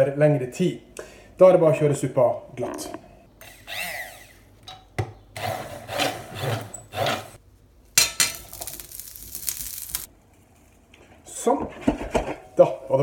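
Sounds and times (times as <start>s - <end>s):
stick blender pureeing soup: 5.4s - 7.4s.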